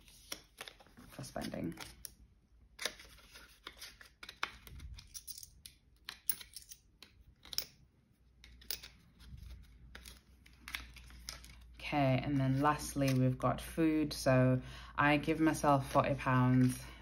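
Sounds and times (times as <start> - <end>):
banknotes rustling: 8.2 - 13.4, 15.6 - 17.0.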